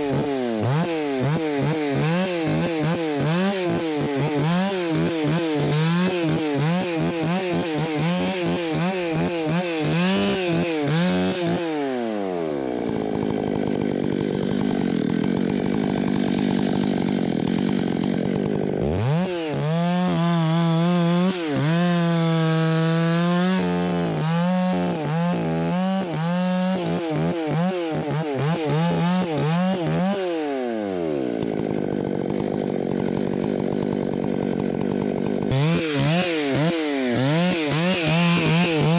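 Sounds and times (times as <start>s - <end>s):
chainsaw cutting a log: 0.0s - 38.9s.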